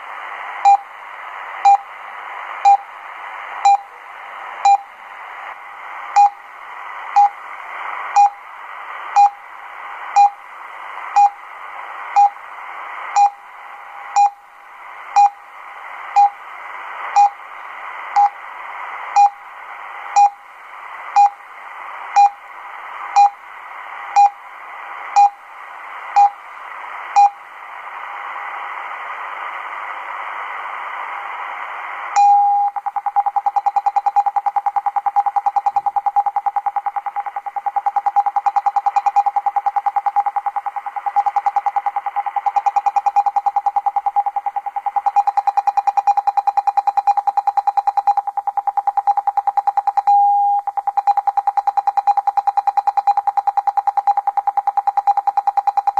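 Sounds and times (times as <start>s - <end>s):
short radio beeps: 32.2s - 55.9s.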